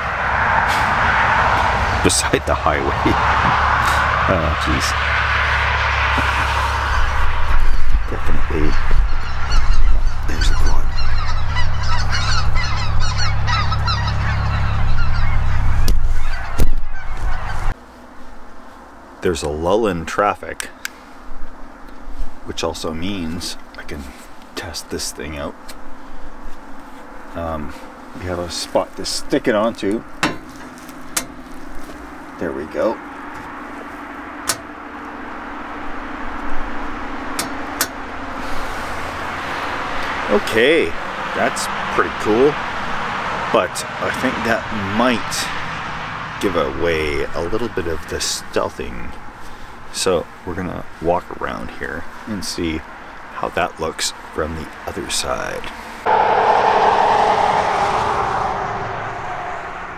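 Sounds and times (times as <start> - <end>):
quad engine droning: 0.0 - 17.7, 31.2 - 49.2, 56.1 - 59.9
highway traffic passing: 0.0 - 19.2, 20.6 - 59.9
high chirping calls: 6.8 - 17.7.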